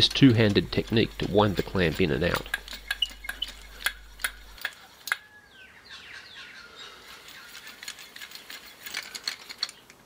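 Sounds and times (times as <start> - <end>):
wooden clamp clicking and rattling: 0.0 - 5.2, 7.2 - 10.0
bird chirping: 0.0 - 10.0.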